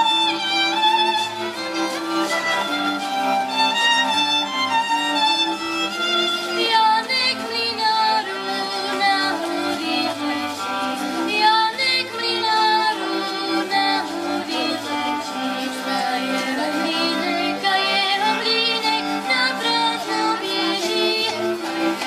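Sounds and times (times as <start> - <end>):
folk band with fiddles: 0.0 - 22.0
girl singing: 11.3 - 15.0, 15.9 - 21.4.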